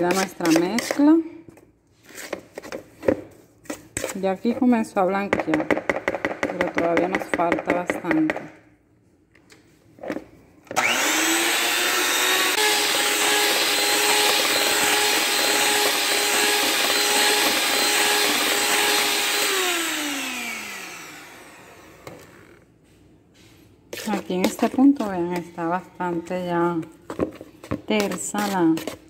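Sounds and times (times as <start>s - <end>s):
electric hand mixer whining: 10.8s - 22.6s.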